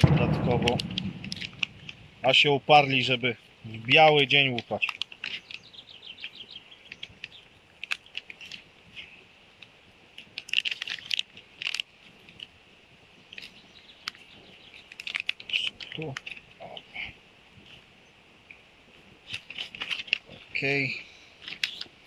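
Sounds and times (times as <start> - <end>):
crackling clicks: 0.0 - 3.1, 3.8 - 12.6, 13.3 - 16.9, 19.2 - 20.8, 21.4 - 22.0
backing paper crinkling: 10.2 - 12.5, 13.3 - 16.6, 19.2 - 20.7, 21.4 - 22.0.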